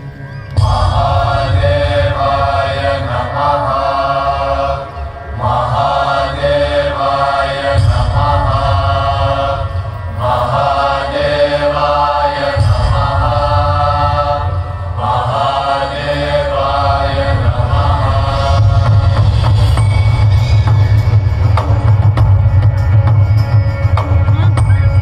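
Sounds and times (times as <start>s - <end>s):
deep low drone: 0.0s - 25.0s
voices chanting a mantra: 0.6s - 20.2s.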